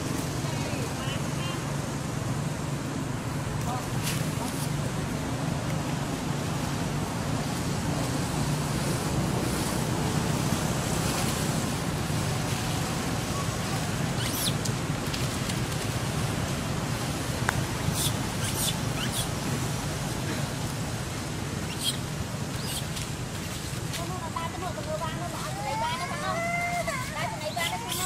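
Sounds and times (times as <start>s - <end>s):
short high squeaks: 14.2s - 14.6s, 17.9s - 19.3s, 22.6s - 22.9s.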